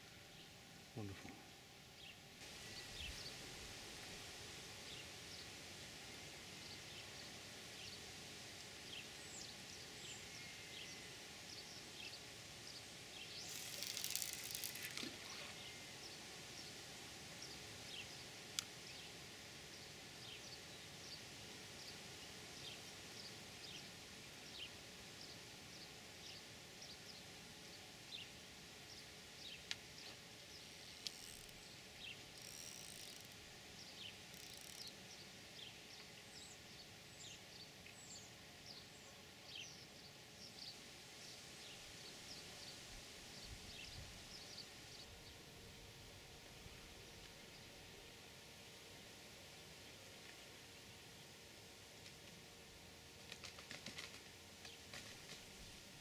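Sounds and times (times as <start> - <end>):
riverbank ambience: 0.0 - 20.3, 29.0 - 38.9
small birds chirping: 8.9 - 16.8.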